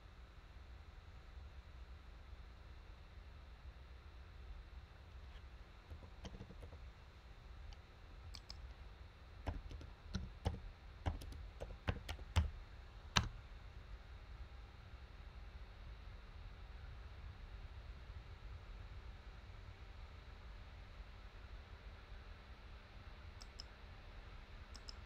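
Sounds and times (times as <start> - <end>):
keyboard typing: 5.9 - 6.8, 8.4 - 8.8, 9.4 - 12.5, 23.4 - 23.6, 24.8 - 25.0.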